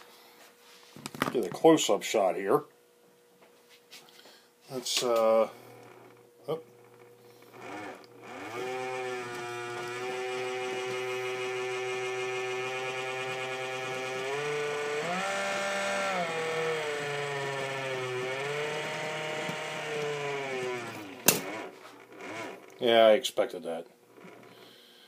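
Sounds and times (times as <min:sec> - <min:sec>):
drive motor whining: 0:04.8 - 0:23.0, 0:24.1 - 0:24.8.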